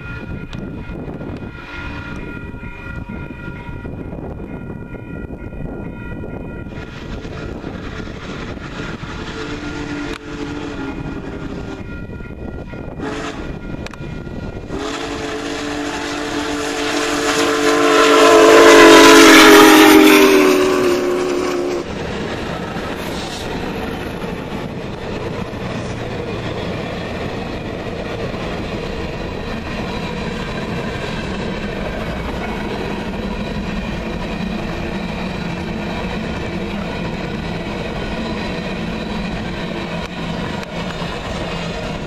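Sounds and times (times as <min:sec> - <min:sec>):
train wheels clacking over rails: 0:06.6 - 0:42.0
steam whistle blasts: 0:09.2 - 0:11.9, 0:12.9 - 0:14.0, 0:14.6 - 0:21.9.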